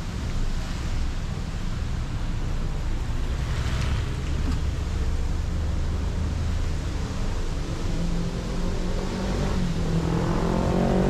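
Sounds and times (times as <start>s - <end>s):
tyre and road hiss: 0.0s - 11.0s.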